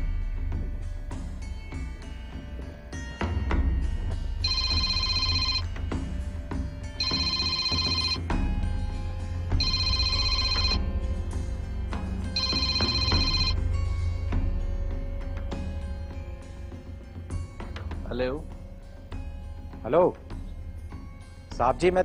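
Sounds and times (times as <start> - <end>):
mobile phone ringing: 4.4 - 5.8, 7.0 - 8.3, 9.6 - 10.9, 12.3 - 13.6.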